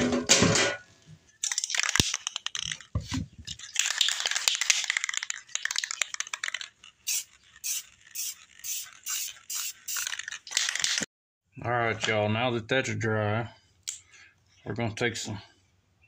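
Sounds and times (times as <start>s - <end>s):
objects being handled: 0.0s - 11.1s
spray can rattling: 1.4s - 11.1s
spray hiss: 7.1s - 10.1s.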